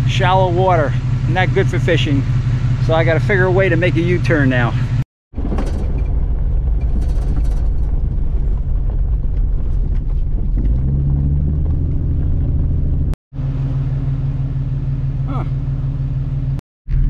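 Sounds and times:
car engine rumble: 0.0s - 17.0s
tyres on gravel road: 0.0s - 17.0s
light clatter: 5.4s - 8.6s.

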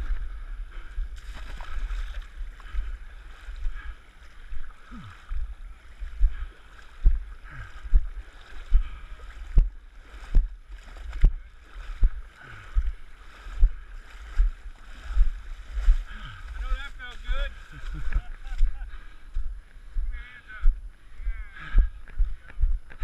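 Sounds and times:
thumping footsteps in water: 0.0s - 20.8s, 21.6s - 23.0s
water sloshing and splashing: 1.1s - 18.7s.

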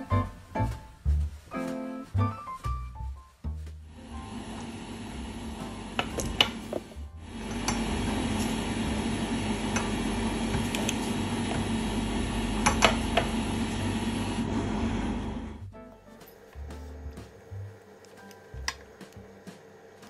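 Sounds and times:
low hum: 3.8s - 17.9s.

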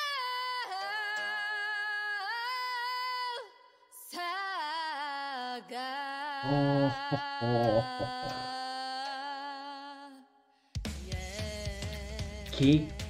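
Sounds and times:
woman singing slow melody: 0.0s - 10.4s, 11.1s - 13.0s
man humming: 6.4s - 8.5s.

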